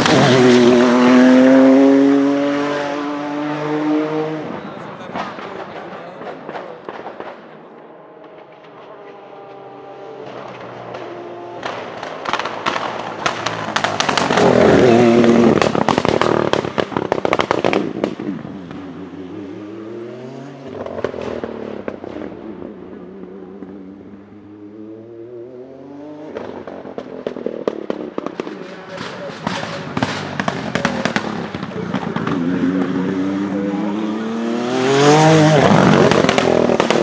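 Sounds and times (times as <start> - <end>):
race car engine at full throttle: 0.0 - 37.0
anti-lag bangs and crackles: 5.1 - 9.2, 10.2 - 18.3, 26.3 - 32.5.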